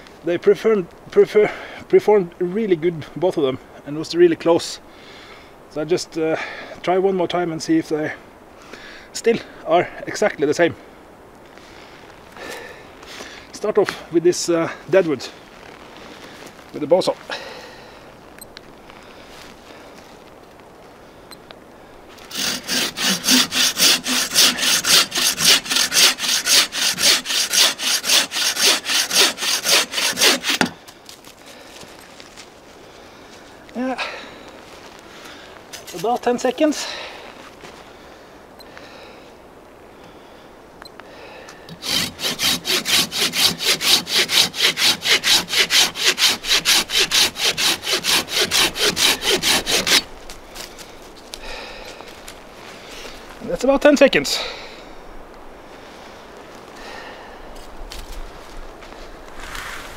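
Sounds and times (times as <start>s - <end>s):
bow saw cutting log: 22.2s - 30.9s, 35.8s - 36.3s, 41.7s - 50.1s.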